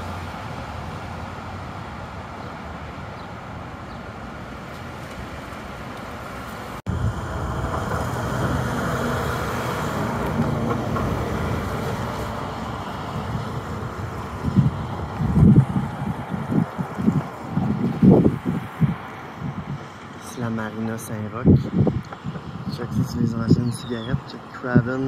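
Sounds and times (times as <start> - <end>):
passing road traffic: 0.0 - 25.0
low engine hum: 4.8 - 19.8.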